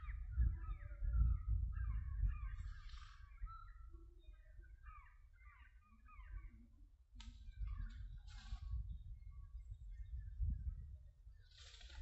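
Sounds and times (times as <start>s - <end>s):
wind rumble on microphone: 0.0s - 4.8s, 6.4s - 12.0s.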